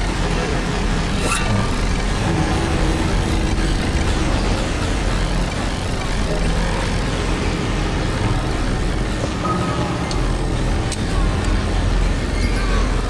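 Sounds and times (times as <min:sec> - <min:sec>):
rumbling noise drone: 0:00.0 - 0:13.0
steady low hum: 0:00.0 - 0:13.0.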